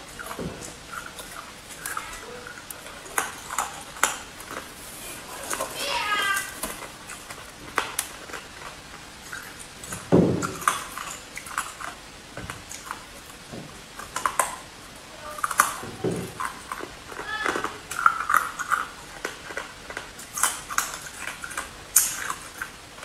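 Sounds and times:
ice being chewed: 0.0 - 23.0.

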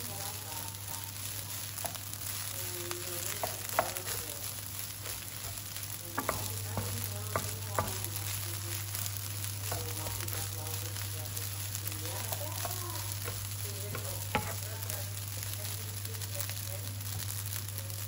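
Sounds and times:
rice sizzling in frying pan: 0.0 - 18.0
spatula scraping pan: 1.1 - 15.0.

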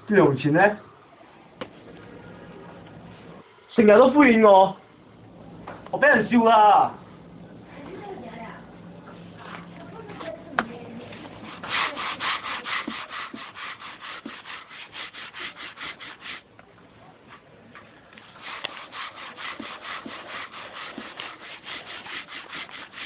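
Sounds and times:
brush scrubbing laundry: 11.1 - 16.5, 18.2 - 23.0.

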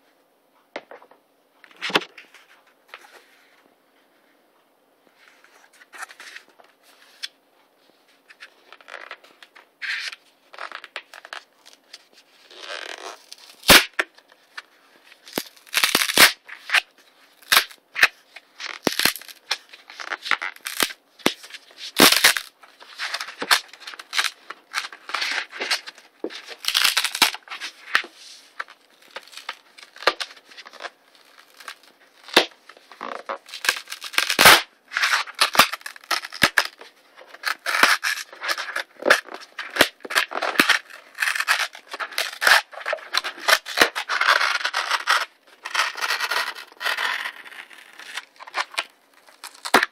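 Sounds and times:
cardboard ripping: 12.4 - 14.1, 15.2 - 49.9.

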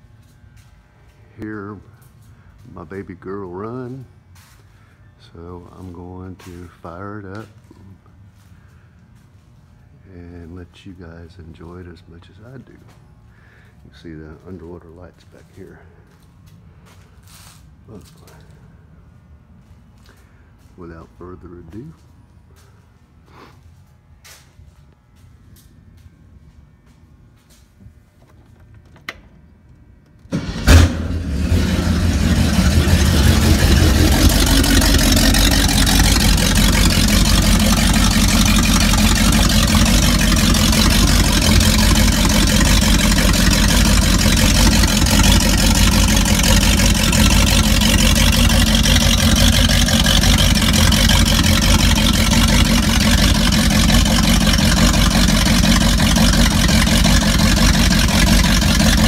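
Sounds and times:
boat engine cranking and starting: 30.1 - 59.0
boat engine deep rumble: 30.4 - 59.0.

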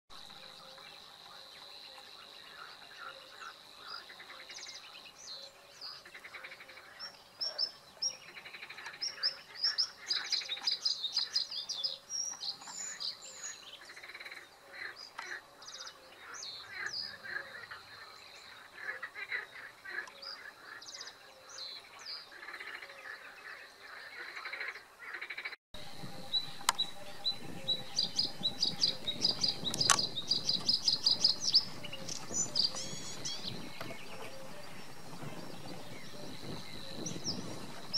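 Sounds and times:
bird singing: 0.1 - 37.9
steady high whine: 25.8 - 37.9.

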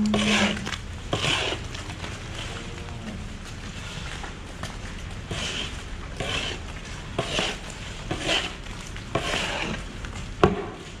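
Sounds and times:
shovel scraping sand: 0.0 - 1.7, 5.3 - 9.8.

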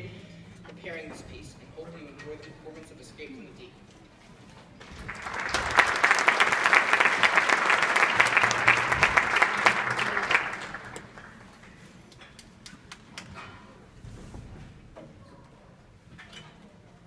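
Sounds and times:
audience applauding: 4.8 - 11.6.

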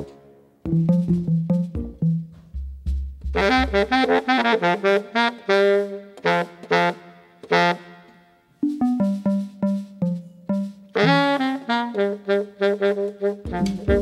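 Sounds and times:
baritone saxophone playing jazz: 3.3 - 14.0.

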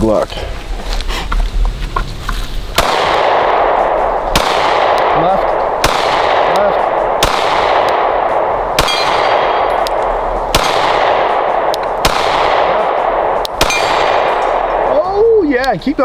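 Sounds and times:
pistol shots: 2.7 - 15.0.

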